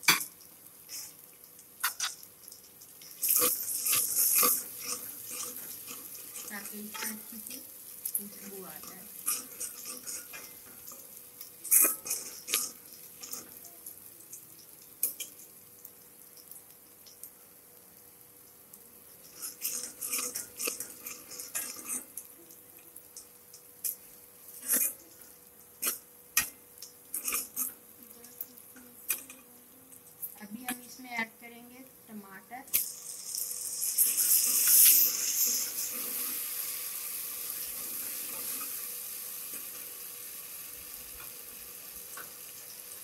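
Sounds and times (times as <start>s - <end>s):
metal spoon scraping a pot: 3.0s - 7.3s, 8.8s - 11.0s, 11.6s - 13.6s, 19.2s - 22.1s, 24.6s - 25.1s, 33.8s - 36.4s.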